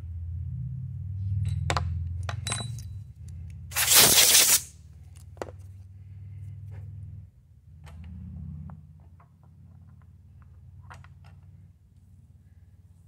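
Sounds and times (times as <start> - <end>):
metal clinks in a vise: 2.4 - 3.0
compressed air hiss: 3.7 - 4.7.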